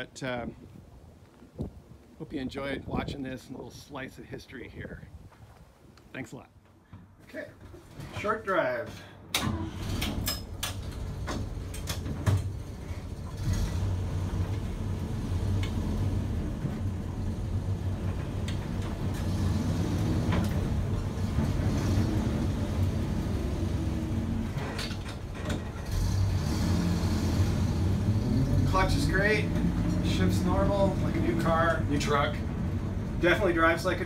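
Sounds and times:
truck engine running: 12.4 - 34.0.

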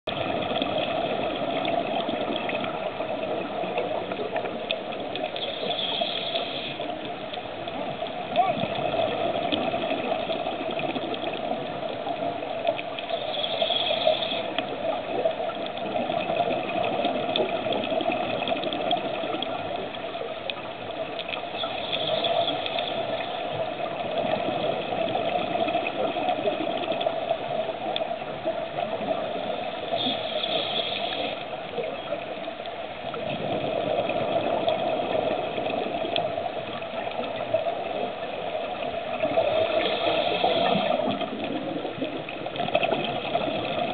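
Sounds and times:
exhaled air bubbling: 0.1 - 43.9
underwater regulator breathing: 5.4 - 7.1, 13.1 - 14.7, 21.6 - 23.5, 29.6 - 31.5, 39.3 - 41.3.

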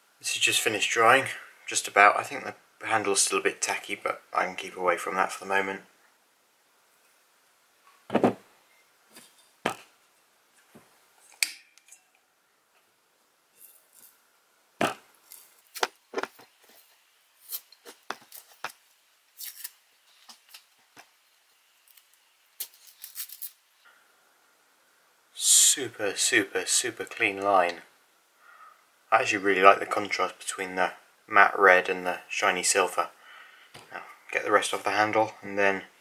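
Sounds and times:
sharp knocks on workbench: 8.1 - 8.4
tape peeling off: 14.8 - 20.8.

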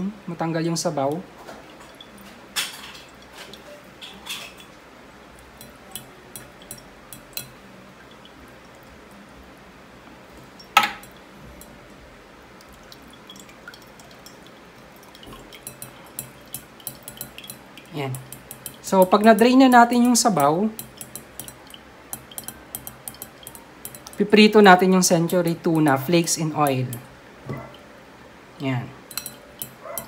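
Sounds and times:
spoon clinking on wire strainer: 5.6 - 7.6, 15.4 - 27.1, 29.1 - 30.0
tin can taps and clinks: 10.8 - 11.2.

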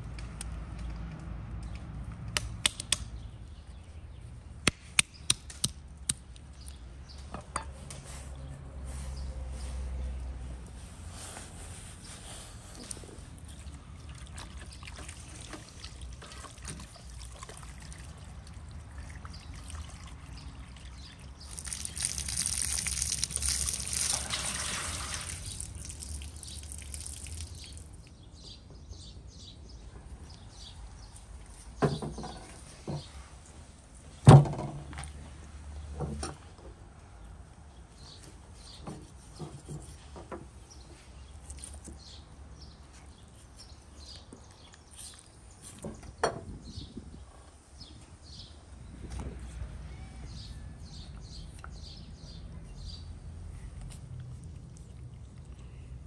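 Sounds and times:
water splashing from hose tap: 14.1 - 28.1.

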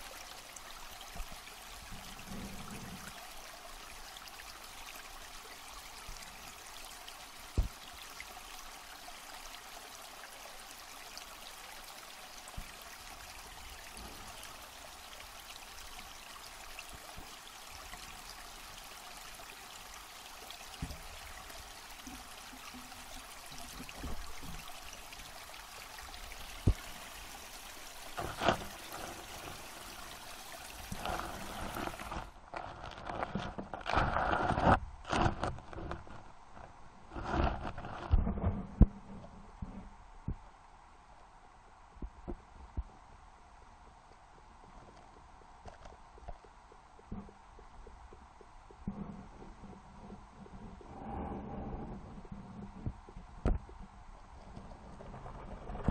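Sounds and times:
steady underwater hiss: 0.0 - 32.4, 38.9 - 55.9
underwater hiss: 26.2 - 32.3.

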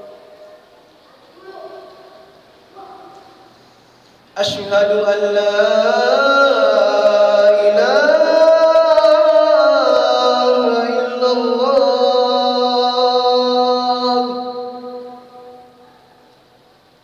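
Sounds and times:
man chanting call to prayer: 4.4 - 15.8.

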